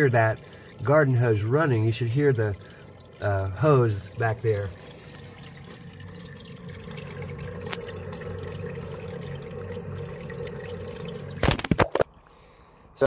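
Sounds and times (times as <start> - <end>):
water running into sump basin: 0.0 - 12.0.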